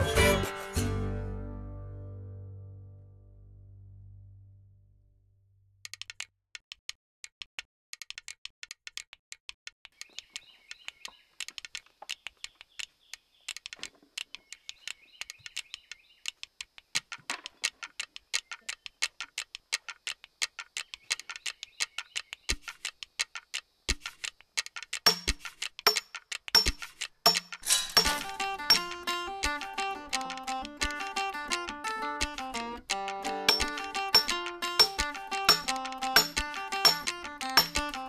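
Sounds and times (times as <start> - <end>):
rapid ticking clicks: 5.8 - 38.0
birds singing: 9.9 - 13.6, 14.2 - 23.6.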